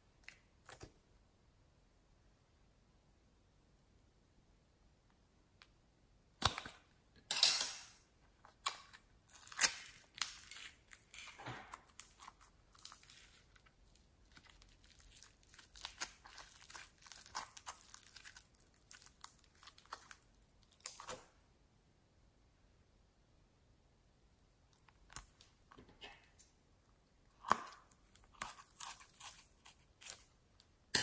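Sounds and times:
slime crackling and crunching: 8.5s - 21.2s, 27.3s - 30.3s.

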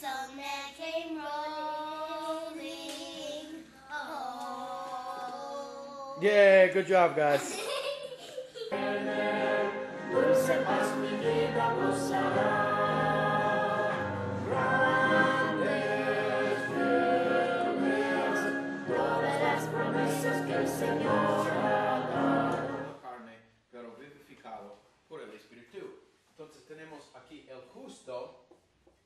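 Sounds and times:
choir singing held chords: 8.7s - 23.0s.

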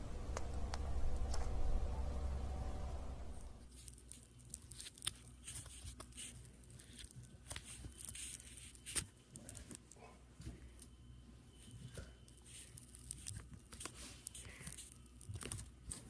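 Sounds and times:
low steady hum: 0.0s - 16.0s
crackles of crumbly play material: 3.7s - 16.0s.

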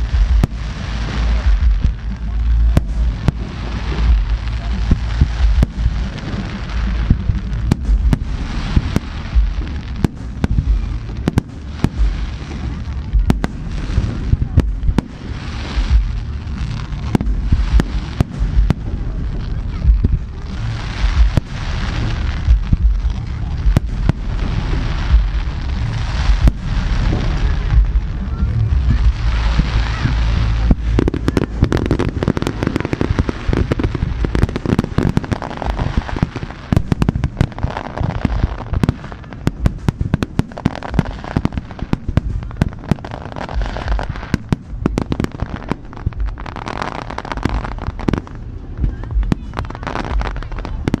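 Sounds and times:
firework bangs: 0.0s - 51.0s
fireworks crackling and rumbling: 0.0s - 51.0s.

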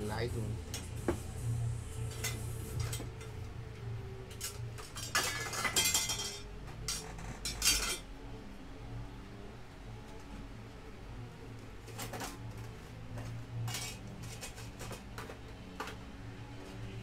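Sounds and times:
steady low hum: 0.0s - 17.0s
metal tools clattering on workbench: 4.4s - 8.0s.

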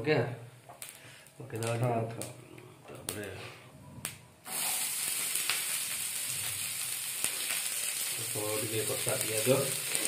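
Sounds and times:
onions sizzling in hot oil: 4.5s - 10.0s.

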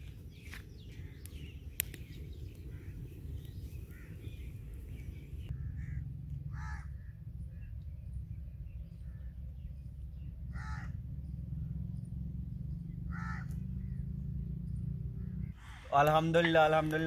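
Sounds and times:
wood fire crackling: 0.0s - 5.5s
low steady rumble: 0.0s - 17.0s
crows cawing: 2.7s - 3.0s, 3.9s - 4.4s, 5.5s - 7.2s, 10.5s - 11.0s, 13.1s - 14.0s, 15.5s - 16.8s.

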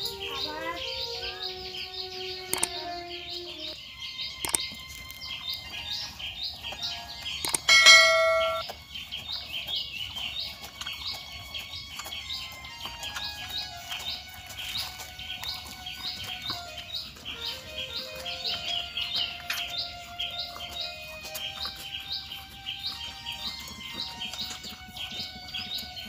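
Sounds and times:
high bird chirps: 0.0s - 26.0s
button click: 2.5s - 2.8s
notification bell ding: 7.7s - 8.6s.

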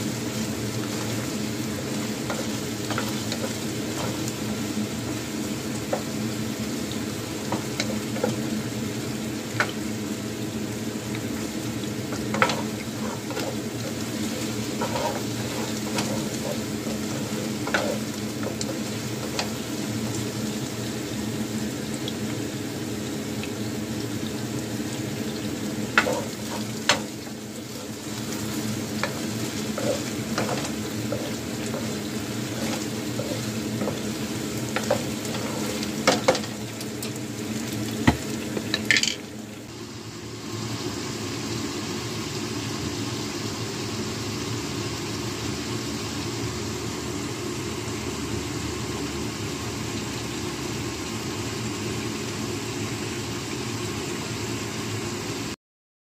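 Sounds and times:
chicken wings sizzling in sauce: 0.0s - 55.6s
utensil scraping a pan: 0.9s - 4.4s, 12.1s - 19.8s, 25.9s - 36.6s.

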